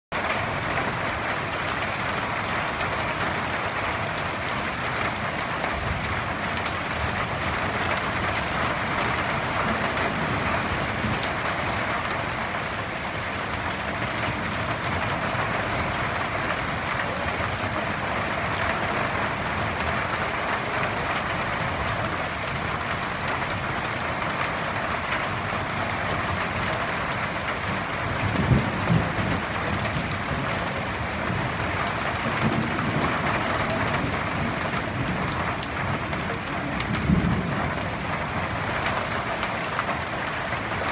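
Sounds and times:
heavy rain falling: 0.1 - 40.9
low rumble of thunder: 27.8 - 39.2.

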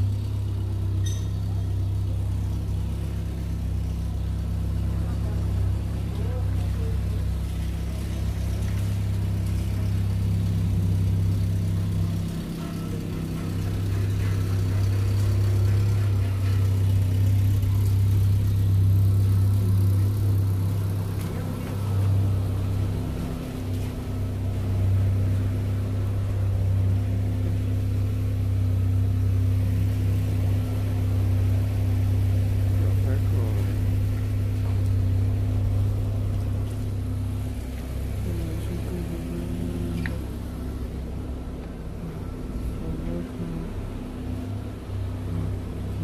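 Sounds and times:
vehicle engine hum: 0.0 - 46.0.

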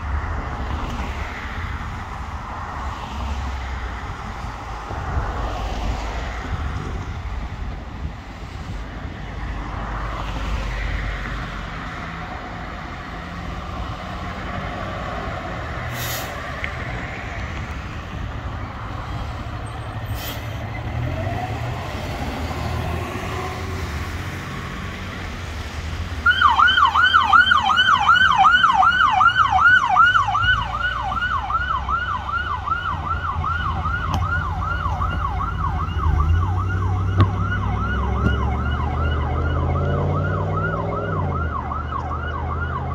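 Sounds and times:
short air hisses: 15.9 - 16.4, 20.1 - 20.6
electronic siren yelping: 26.2 - 42.9.

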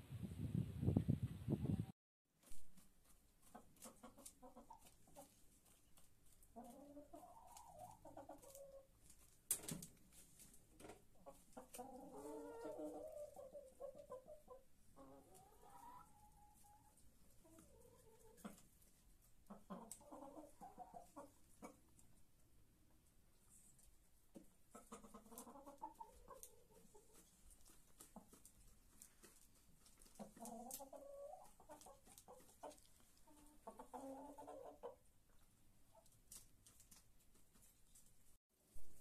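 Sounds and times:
hens clucking: 3.4 - 9.0, 10.8 - 22.0, 24.3 - 36.2.

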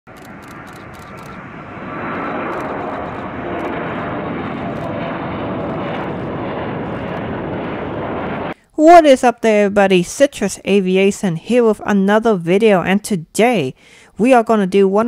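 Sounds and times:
airliner engine rush: 0.1 - 8.6.

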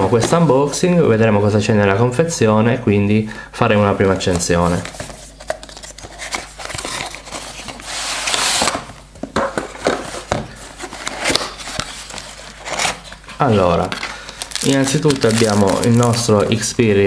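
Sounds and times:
box sliding out of paper sleeve: 6.2 - 8.8.

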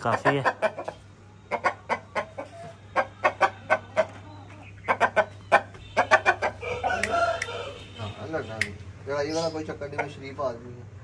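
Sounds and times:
chicken clucking: 0.0 - 7.8.

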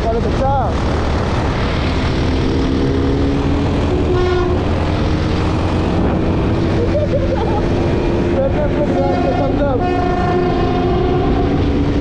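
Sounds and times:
motorcycle running: 0.0 - 12.0
wind noise on microphone: 0.9 - 8.3.

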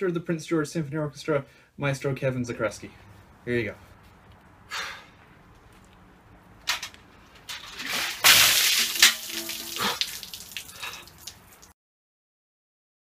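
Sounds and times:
water dumped from metal bucket: 7.5 - 11.7
water dripping: 7.5 - 11.8.

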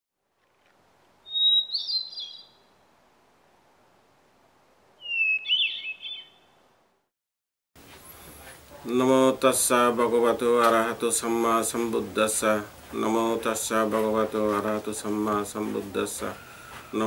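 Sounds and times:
bird warbling: 1.2 - 2.7, 5.0 - 6.6
faint steady hiss: 7.8 - 17.0.

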